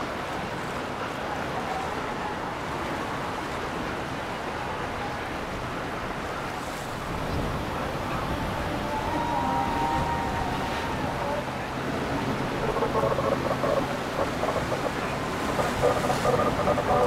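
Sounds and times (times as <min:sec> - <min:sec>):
river water rushing: 0:00.0 - 0:17.0
wind: 0:00.0 - 0:17.0.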